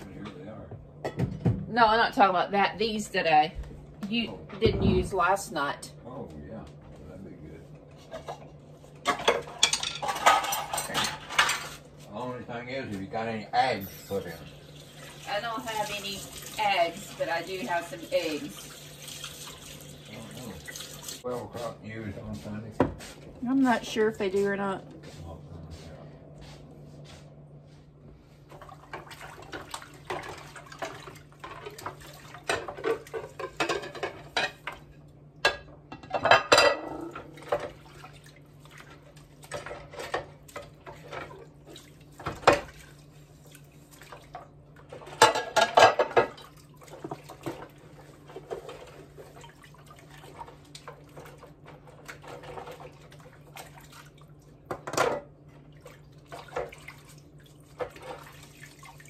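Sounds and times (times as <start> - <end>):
plates clinking and clattering: 1.0 - 1.6, 8.0 - 11.8, 30.9 - 34.8, 35.4 - 37.8, 45.0 - 46.4
water sloshing and splashing: 14.2 - 21.4, 28.4 - 35.1, 36.2 - 59.0
steady low hum: 21.2 - 52.0.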